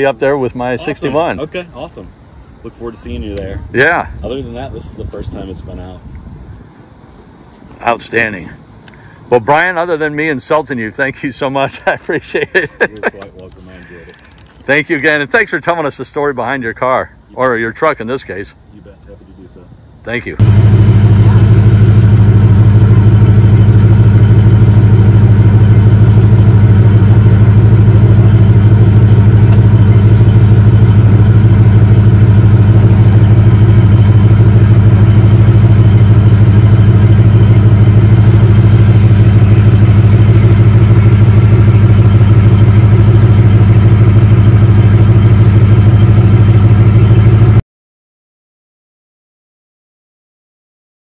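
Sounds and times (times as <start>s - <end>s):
engine idling loudly: 20.4s - 47.6s.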